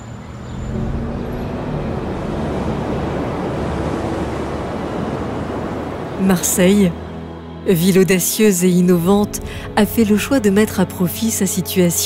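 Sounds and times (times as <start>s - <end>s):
soft background music: 0.0s - 12.0s
steady rushing noise: 0.6s - 7.6s.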